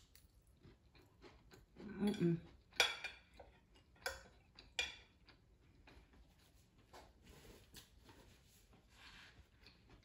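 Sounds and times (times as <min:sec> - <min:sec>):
cutlery clinking against dish: 0:02.7 - 0:05.2.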